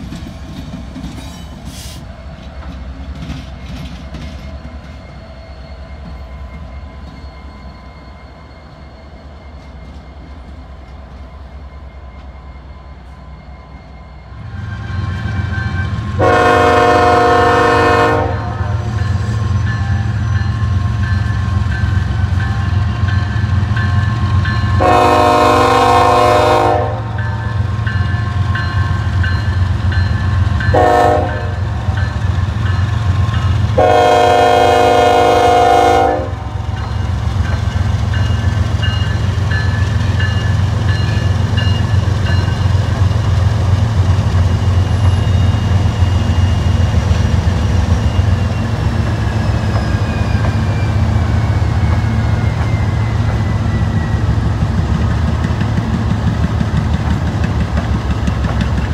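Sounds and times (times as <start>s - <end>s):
locomotive air horn blasts: 16.2s - 18.9s, 24.8s - 27.2s, 30.7s - 31.8s, 33.8s - 36.6s.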